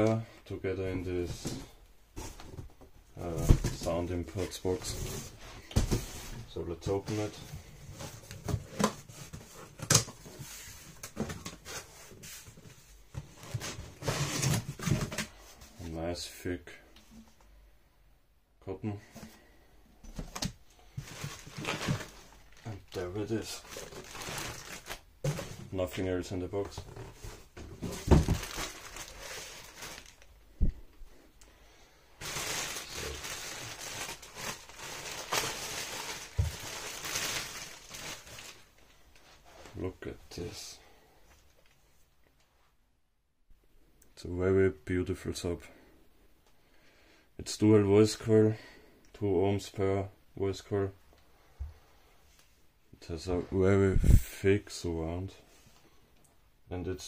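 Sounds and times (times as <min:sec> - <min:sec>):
cardboard rustling: 0:03.4 - 0:15.8, 0:20.0 - 0:26.0, 0:26.6 - 0:30.8, 0:32.2 - 0:38.8
plastic bag crinkling: 0:20.9 - 0:25.5, 0:27.8 - 0:30.4, 0:32.2 - 0:38.8.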